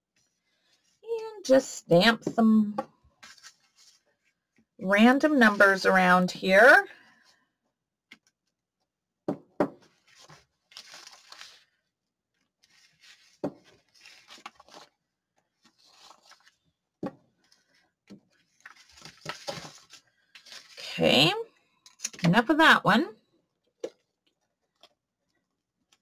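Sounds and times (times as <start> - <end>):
paper rustling on table: 3.2 - 4.6, 9.9 - 16.6, 17.4 - 21.0.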